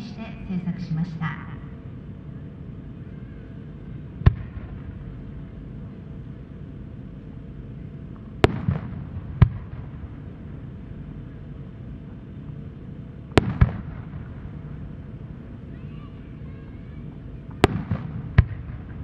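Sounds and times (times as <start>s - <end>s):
distant firework bangs: 8.4s - 10.0s, 13.3s - 14.7s, 17.1s - 19.0s.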